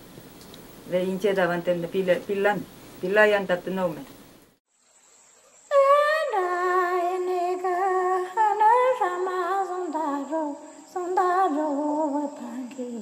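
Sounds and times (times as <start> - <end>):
woman singing unaccompanied: 5.7 - 13.0.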